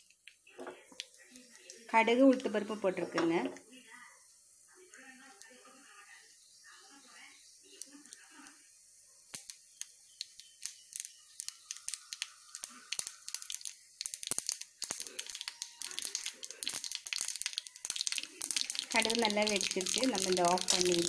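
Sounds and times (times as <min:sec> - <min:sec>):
seeds popping in hot oil: 0:00.0 - 0:03.5, 0:07.4 - 0:08.6, 0:09.3 - 0:21.0
oil sizzling hiss: 0:06.6 - 0:21.0.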